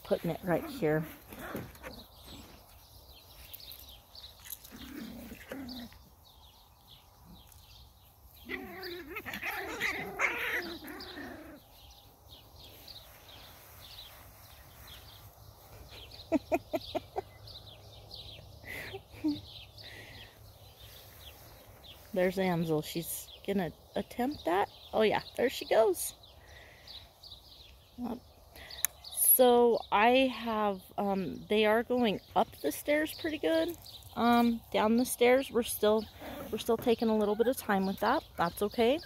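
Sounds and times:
birds chirping: 0:00.0 - 0:39.0
puppies whining and yipping: 0:36.1 - 0:37.8.

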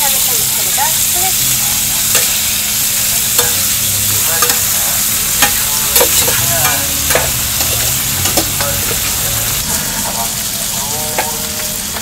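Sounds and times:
food sizzling on a griddle: 0:00.0 - 0:12.0
metal spatula clicking and scraping: 0:02.0 - 0:02.5, 0:03.3 - 0:03.8, 0:04.4 - 0:09.4.

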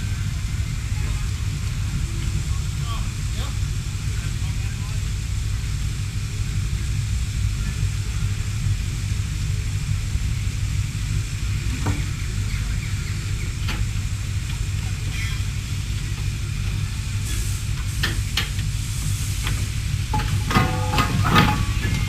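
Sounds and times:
steam engine hissing and rumbling: 0:00.0 - 0:22.0
sharp metallic knocks: 0:20.2 - 0:22.0.

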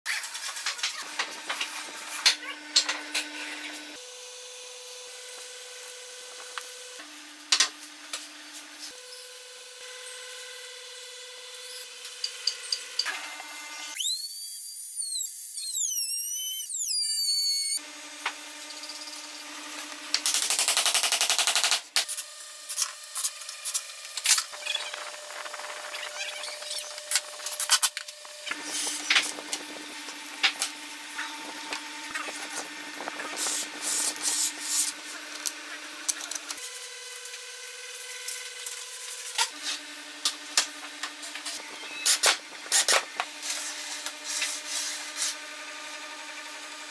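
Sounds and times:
router motor whining: 0:22.3 - 0:46.9.

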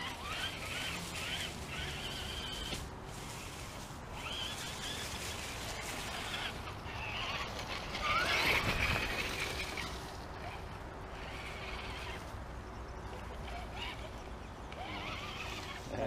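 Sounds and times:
electric motor and gear whine: 0:00.0 - 0:16.0.

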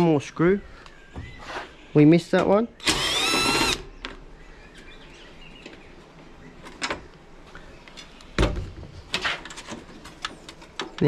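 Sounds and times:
cordless drill motor whine: 0:02.8 - 0:03.8.

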